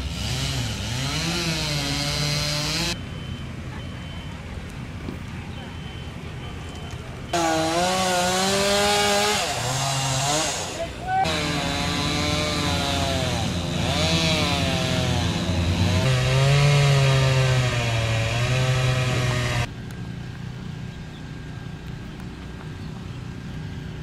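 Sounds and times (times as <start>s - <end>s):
chainsaw revving: 0.0s - 3.0s, 7.3s - 19.7s.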